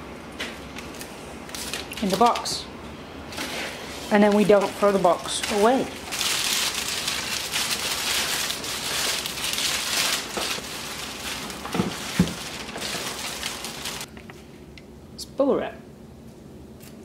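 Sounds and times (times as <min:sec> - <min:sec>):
plastic wrapping crinkling: 0:00.9 - 0:02.6, 0:03.4 - 0:14.1.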